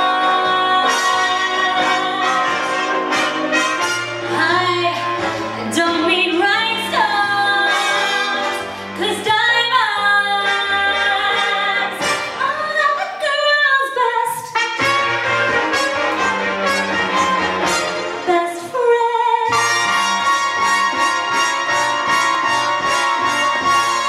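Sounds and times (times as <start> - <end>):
woman singing: 0.0 - 3.0, 4.3 - 14.6, 18.2 - 19.8
brass-led band music: 0.0 - 13.2, 14.3 - 18.7, 19.4 - 24.0.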